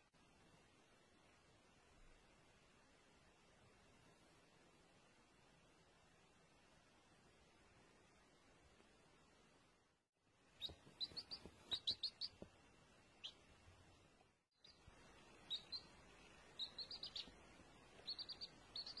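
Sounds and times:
baby chicks peeping: 10.5s - 12.5s, 13.2s - 13.5s, 14.6s - 19.0s.

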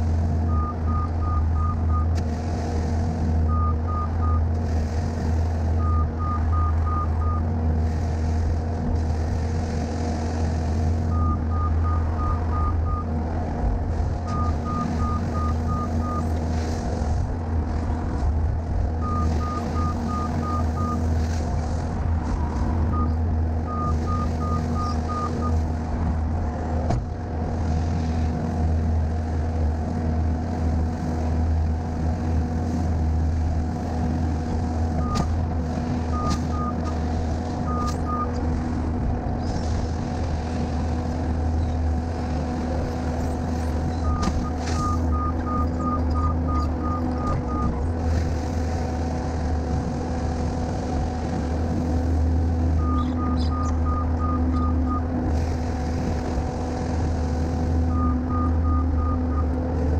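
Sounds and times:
diesel engine running: 0.0s - 59.9s
backup alarm beeping: 0.5s - 2.1s, 3.5s - 4.4s, 5.8s - 7.5s, 11.1s - 13.1s, 14.3s - 16.3s, 19.0s - 21.1s, 22.9s - 25.6s, 44.0s - 47.8s, 52.8s - 55.1s, 57.9s - 59.5s.

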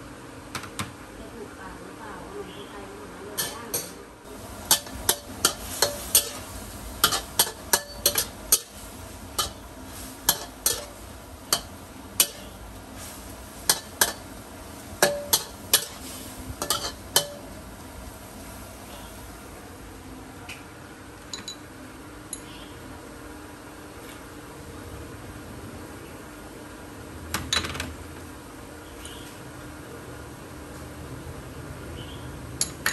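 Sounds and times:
metal utensil scraping wok: 3.4s - 14.3s, 15.0s - 17.5s
food sizzling: 4.3s - 19.6s.

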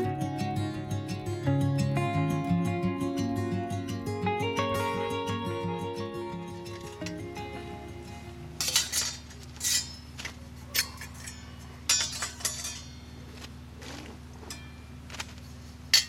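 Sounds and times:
steady low hum: 0.0s - 16.0s
metal cups clinking and scraping: 8.6s - 10.1s, 10.8s - 13.0s.

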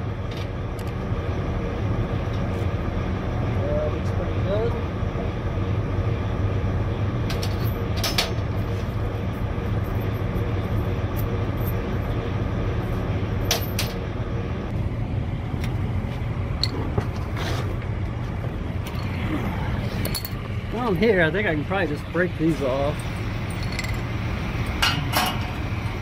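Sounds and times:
engine idling: 0.0s - 26.0s
metal tools clinking: 20.0s - 20.4s, 22.8s - 25.6s.

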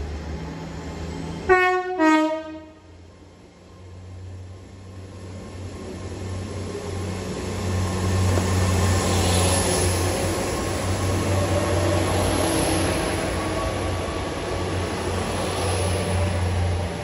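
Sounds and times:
diesel train engine drone: 0.0s - 17.0s.

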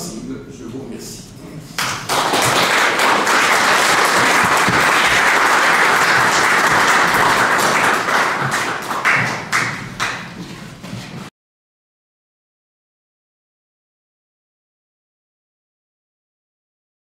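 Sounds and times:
audience applauding: 1.8s - 10.4s.

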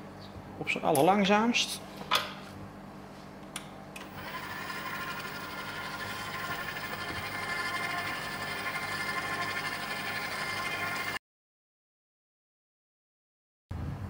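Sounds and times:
stand mixer motor whining: 4.0s - 11.2s.

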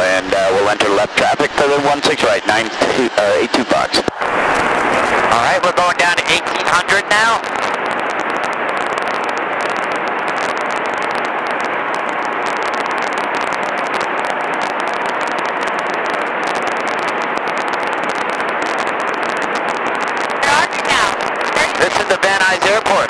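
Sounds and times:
aircraft engine and wind drone: 0.0s - 13.4s.

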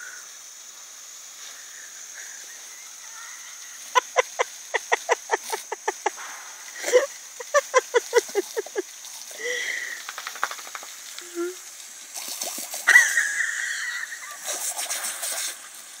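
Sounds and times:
hose water jet hissing: 0.0s - 16.0s.

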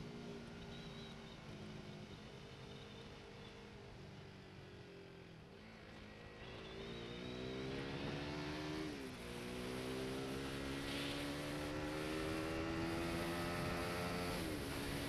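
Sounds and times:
motorcycle engine shifting gears: 6.4s - 15.0s.

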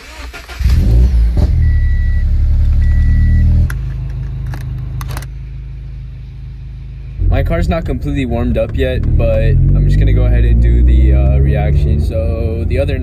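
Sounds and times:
car engine starting and idling: 0.0s - 13.0s
short electronic beeps: 1.6s - 3.6s.

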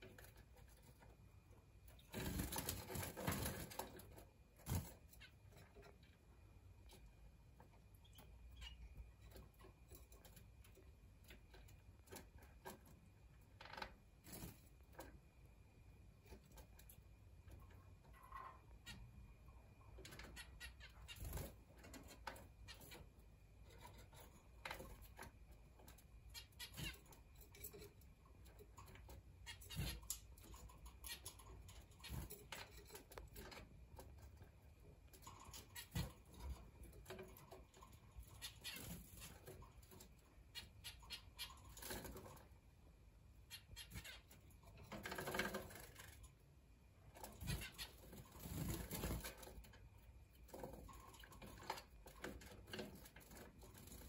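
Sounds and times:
wing flutters: 2.0s - 6.0s, 47.2s - 49.8s
soft bird chirps: 5.1s - 11.8s, 43.3s - 44.8s.

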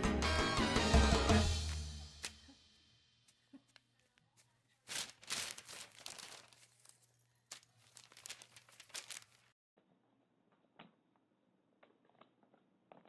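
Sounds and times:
cat clawing crinkly sheet: 4.8s - 9.6s.

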